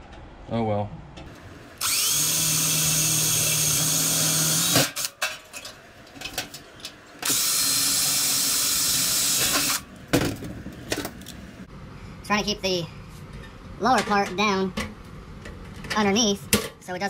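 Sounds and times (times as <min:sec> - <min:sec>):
cordless drill boring sheet metal: 0:01.8 - 0:05.1, 0:07.2 - 0:09.8.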